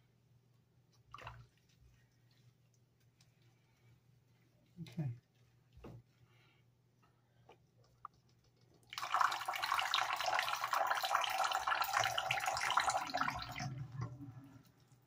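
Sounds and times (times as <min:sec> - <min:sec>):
tap water running into sink: 0:08.9 - 0:14.4.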